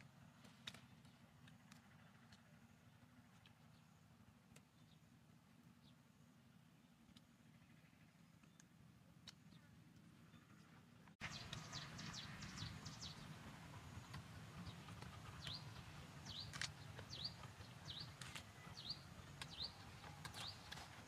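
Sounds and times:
outdoor background noise: 0:00.0 - 0:21.0
small bird chirping: 0:06.8 - 0:21.0.

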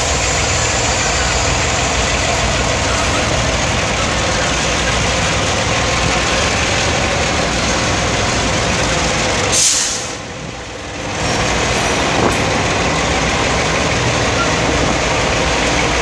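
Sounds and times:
freight wagons rolling on rails: 0:00.0 - 0:09.6
diesel locomotives running: 0:00.0 - 0:16.0
brief sharp hiss: 0:09.6 - 0:10.2.

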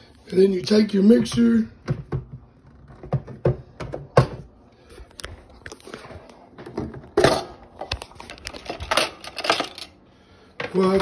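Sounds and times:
kitchen things clicking and knocking: 0:01.2 - 0:04.5, 0:06.6 - 0:10.0.

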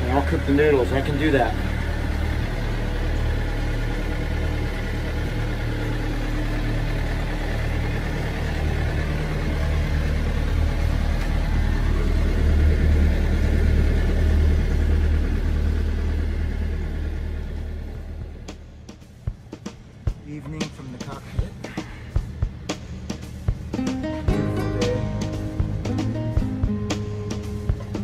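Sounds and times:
boat engine droning: 0:00.0 - 0:18.6
wind: 0:00.0 - 0:28.0.

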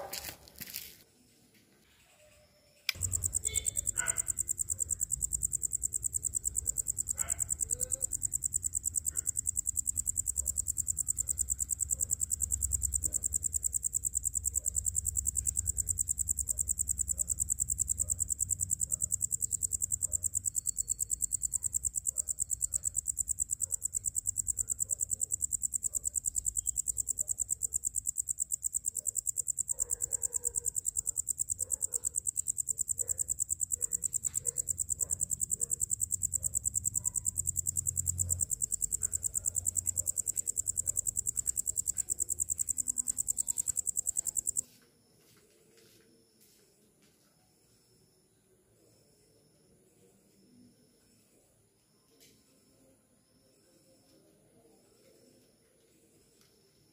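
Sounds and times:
crickets trilling: 0:02.9 - 0:44.6.

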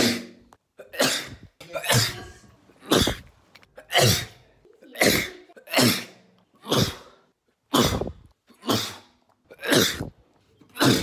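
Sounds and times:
man sneezing: 0:05.0 - 0:10.1.

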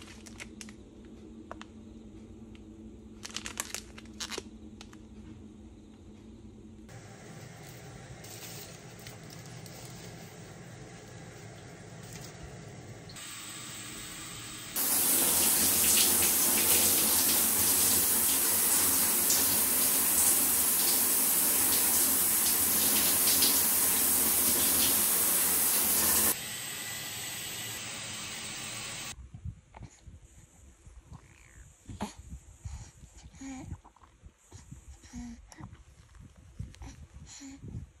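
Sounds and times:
water running from tap: 0:13.2 - 0:29.2.

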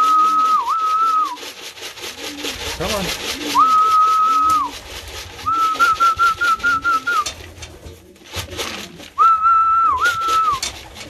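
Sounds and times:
person whistling: 0:00.0 - 0:01.4, 0:03.6 - 0:04.7, 0:05.4 - 0:07.2, 0:09.2 - 0:10.6
pigeons cooing: 0:00.0 - 0:11.0.

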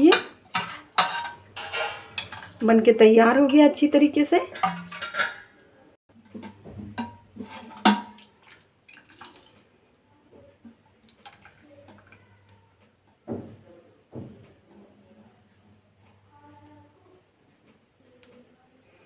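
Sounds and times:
metal ladle clinking on metal: 0:00.0 - 0:02.6, 0:04.5 - 0:05.6.

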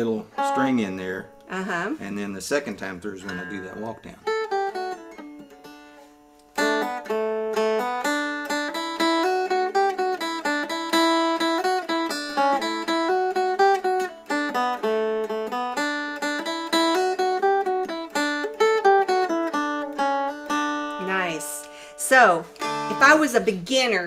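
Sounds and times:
mountain dulcimer melody: 0:03.2 - 0:21.4, 0:22.5 - 0:23.4.

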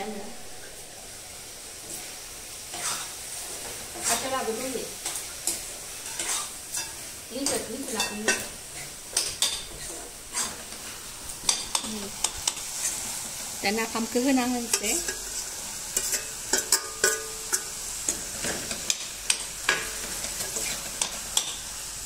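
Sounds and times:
food sizzling: 0:00.0 - 0:22.0
metal spatula scraping a wok: 0:02.7 - 0:13.2, 0:14.6 - 0:21.6.

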